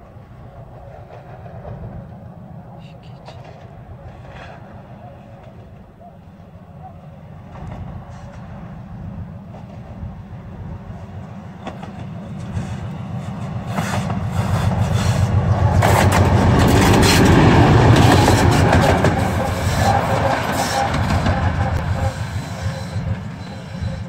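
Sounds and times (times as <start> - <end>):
diesel locomotive throbbing: 0.0 - 24.0
wheels clacking over rail joints: 11.5 - 24.0.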